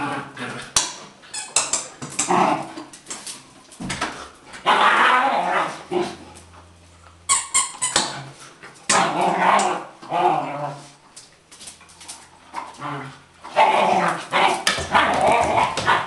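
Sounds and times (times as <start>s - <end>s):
dog growl: 0.0s - 0.8s, 2.2s - 2.8s, 4.6s - 6.4s, 8.9s - 11.0s, 12.6s - 16.0s
dogs yelping and barking: 13.4s - 16.0s.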